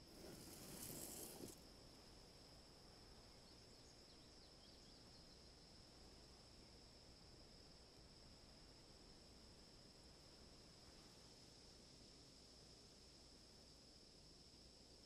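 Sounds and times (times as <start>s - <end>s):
low hiss: 0.0s - 15.0s.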